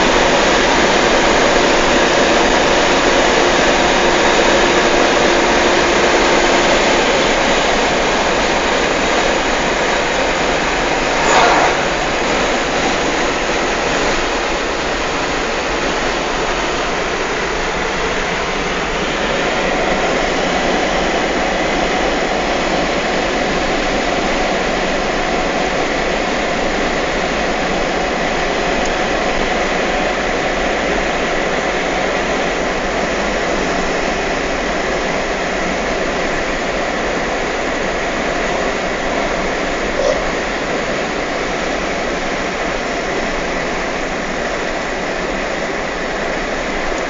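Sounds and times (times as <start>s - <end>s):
wind and tyre noise in car: 0.0s - 47.0s.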